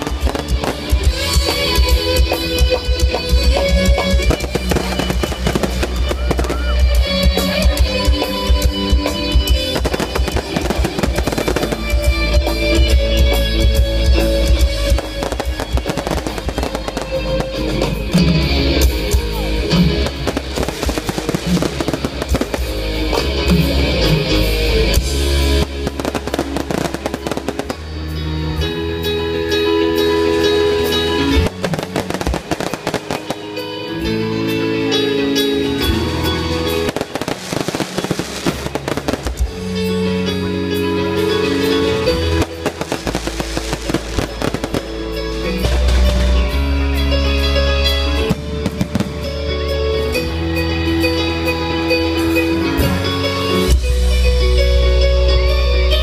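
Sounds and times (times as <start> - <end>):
fireworks crackling and banging: 0.0 - 19.2, 19.8 - 24.2, 25.0 - 28.2, 31.4 - 33.7, 36.8 - 40.0, 41.5 - 47.0, 48.1 - 50.1
loud music: 0.0 - 56.0.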